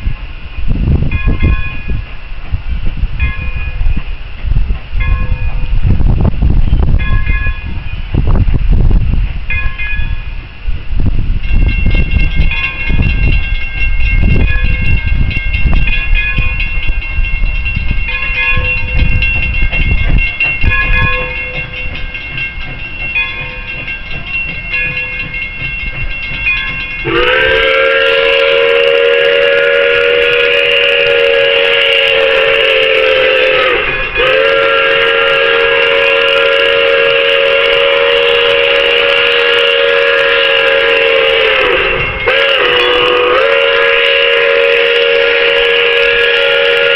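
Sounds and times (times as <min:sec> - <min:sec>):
steam locomotive rumble: 0:00.0 - 0:46.9
steam whistle blasts: 0:27.0 - 0:46.9.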